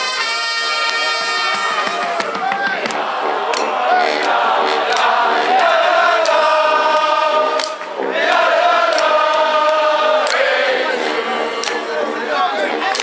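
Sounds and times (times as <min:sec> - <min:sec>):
brass band holding long chords: 0:00.0 - 0:13.0.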